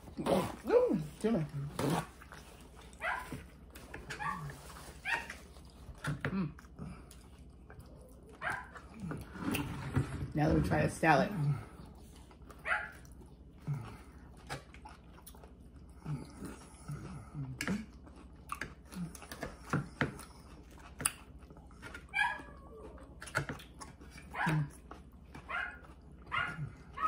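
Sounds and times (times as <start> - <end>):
crunching while eating: 0.0 - 10.1, 11.6 - 27.0
dog barking: 3.0 - 3.4, 4.2 - 5.3, 8.4 - 8.8, 12.6 - 13.0, 24.3 - 24.7, 25.5 - 27.0
dog whining: 4.0 - 5.4, 22.1 - 23.2, 24.3 - 24.8, 25.5 - 27.0.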